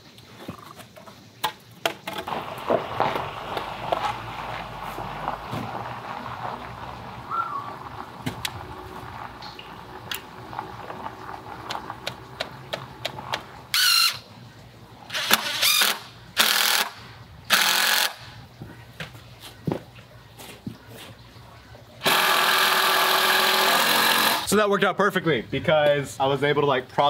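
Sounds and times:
cordless drill motor whirring: 15.1 - 18.2, 22.0 - 24.5.

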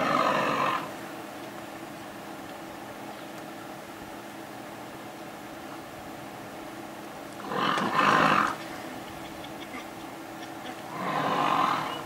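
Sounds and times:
lion growling: 0.0 - 0.9, 7.4 - 8.6, 10.9 - 12.0.

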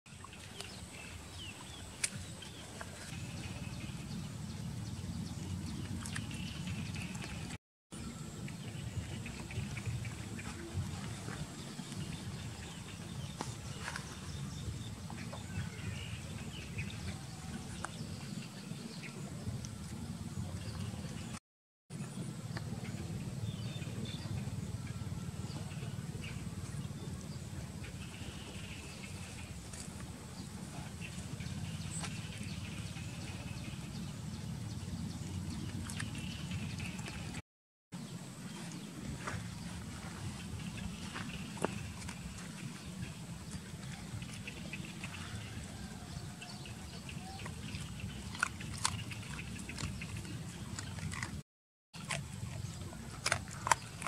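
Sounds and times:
steady low rumble: 2.2 - 21.4, 22.0 - 37.4, 38.1 - 51.4
dog chewing: 47.2 - 51.4, 52.0 - 54.0.

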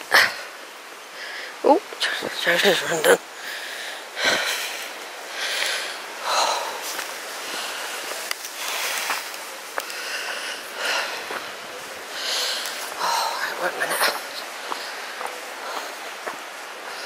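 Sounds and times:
person breathing hard: 3.4 - 9.2, 9.8 - 13.6, 14.5 - 16.2.

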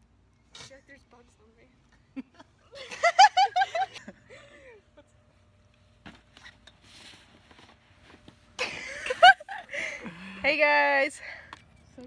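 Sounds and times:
faint outdoor sounds: 0.0 - 12.0.

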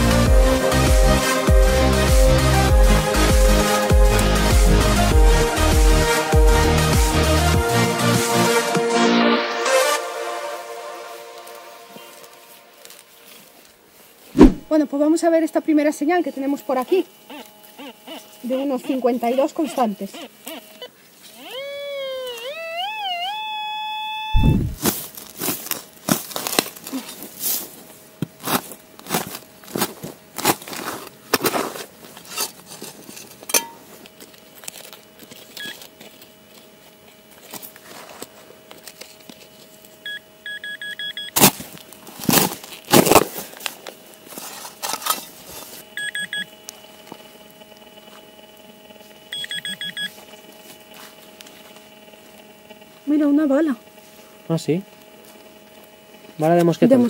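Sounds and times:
spade digging into earth: 14.4 - 14.7
metal detector tone: 21.5 - 24.8, 40.0 - 41.4, 46.0 - 46.5, 49.3 - 50.1
pinpointer high beeps: 22.4 - 24.8, 40.1 - 41.4, 46.0 - 46.5, 49.3 - 50.1.

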